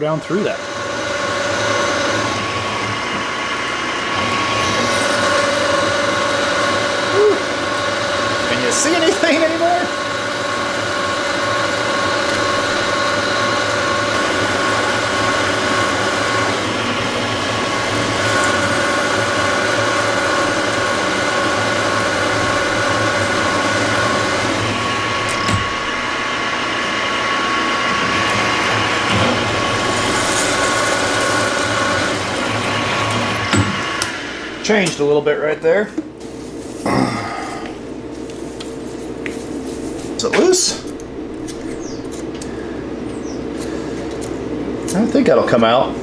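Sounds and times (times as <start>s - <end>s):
milling spindle gear whine: 0.0s - 46.0s
cutter cutting steel: 0.3s - 35.0s.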